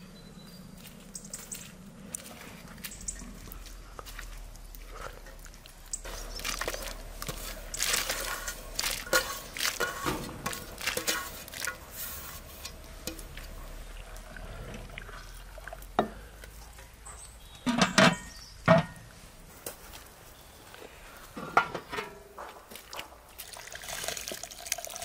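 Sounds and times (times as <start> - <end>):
stirring in a pot: 4.8 - 16.9.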